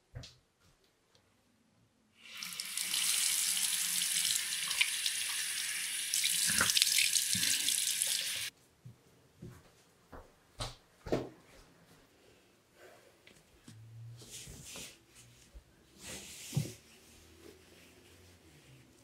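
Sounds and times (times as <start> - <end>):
faucet running into sink: 2.3 - 8.5.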